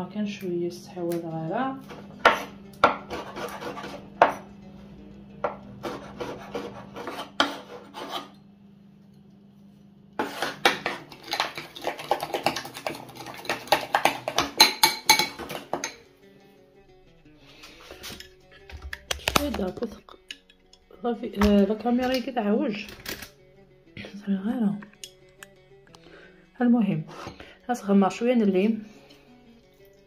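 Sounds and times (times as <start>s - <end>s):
knife chopping on cutting board: 1.9s - 4.4s, 5.4s - 8.3s, 10.2s - 15.6s.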